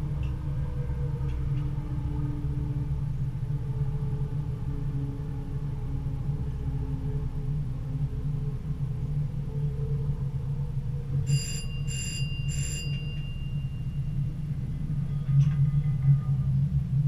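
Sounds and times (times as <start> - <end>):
diesel railcar drone: 0.0 - 17.0
level crossing bell ringing: 11.3 - 13.9.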